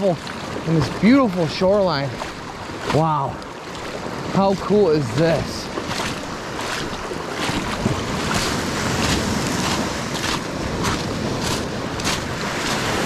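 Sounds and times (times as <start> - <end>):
lake waves washing up shore: 0.0 - 13.0
wind buffeting microphone: 3.8 - 13.0.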